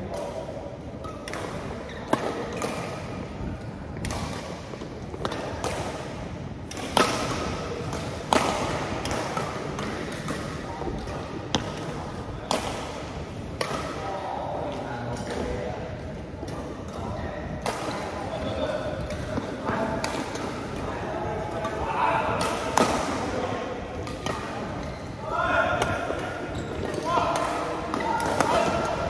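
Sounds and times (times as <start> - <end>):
racket smacking shuttlecock: 3.9 - 11.9.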